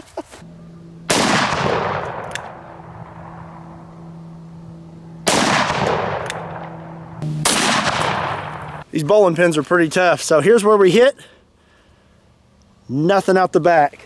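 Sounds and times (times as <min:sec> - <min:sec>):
revolver gunshots: 0:01.0 - 0:04.1, 0:05.1 - 0:08.8.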